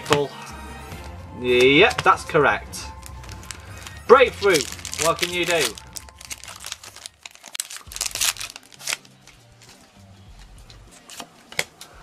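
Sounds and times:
foil wrapper crinkling and tearing: 2.9s - 9.7s.

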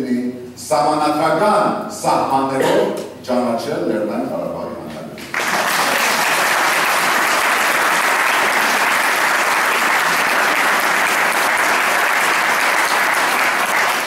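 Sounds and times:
audience applauding: 5.2s - 14.0s.

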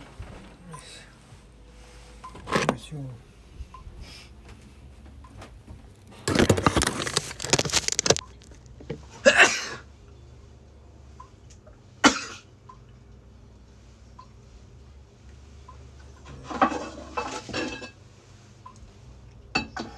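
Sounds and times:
phone handling rustling and crackling: 5.8s - 9.0s.

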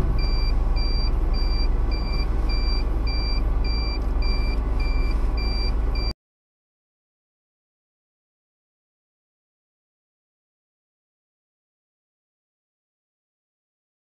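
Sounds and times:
high electronic warning beep: 0.0s - 6.1s
car engine and road noise: 0.0s - 6.2s.

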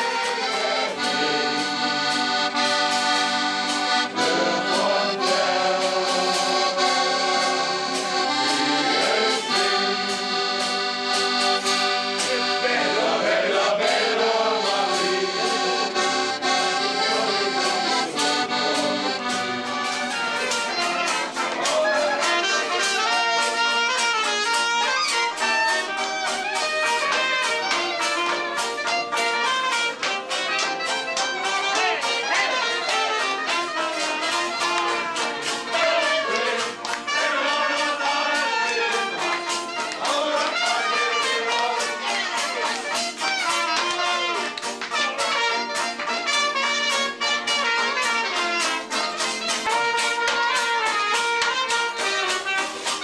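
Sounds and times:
held reedy chords: 0.0s - 22.9s
saxophone: 0.0s - 53.0s
strummed acoustic guitar: 0.0s - 53.0s.

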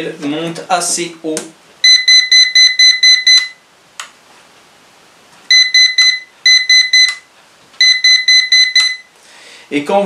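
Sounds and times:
quick high electronic beeps: 5.5s - 7.2s, 7.8s - 9.1s.

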